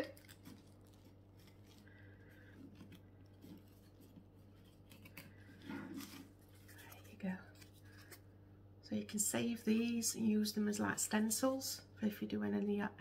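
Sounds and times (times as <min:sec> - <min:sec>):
packaging rustling: 0:00.0 - 0:08.2
low steady hum: 0:00.0 - 0:13.0.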